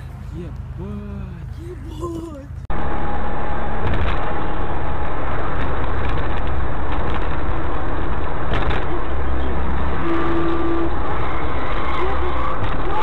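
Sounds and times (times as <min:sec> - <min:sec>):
car engine rumble: 0:00.0 - 0:13.0
tyre road noise: 0:00.0 - 0:13.0.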